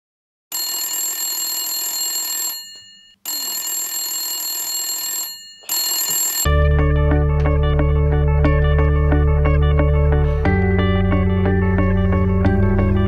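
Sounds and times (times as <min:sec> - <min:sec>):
electronic ring tone: 0:00.5 - 0:06.6
guitar music: 0:06.5 - 0:13.0.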